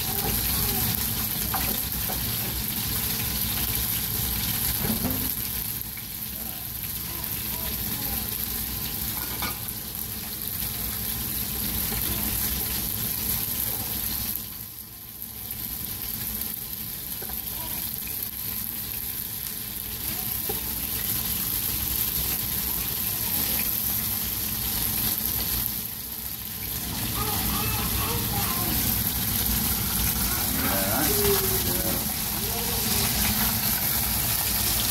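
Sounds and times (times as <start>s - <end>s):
fried rice being stirred: 0.0s - 7.0s, 15.5s - 34.9s
fish fillets sizzling in oil: 0.0s - 34.9s.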